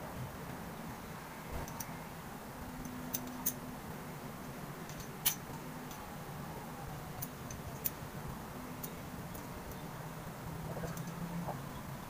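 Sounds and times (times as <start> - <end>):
low background hum: 0.0 - 12.0
small metal clicks: 1.6 - 2.0, 2.8 - 3.7, 4.8 - 6.0, 7.2 - 8.0, 10.7 - 11.2.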